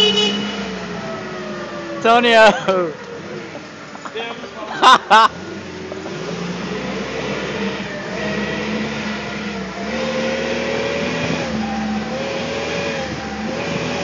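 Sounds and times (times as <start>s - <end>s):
forklift motor humming: 5.3s - 14.0s.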